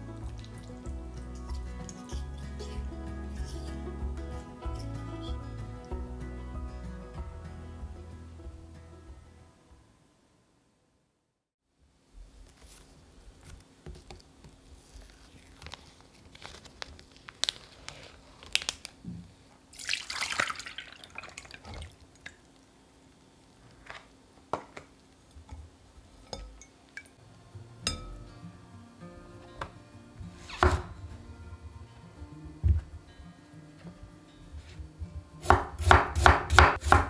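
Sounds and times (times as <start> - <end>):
liquid pouring: 19.7 - 22.6
water dripping through sieve: 19.8 - 22.6.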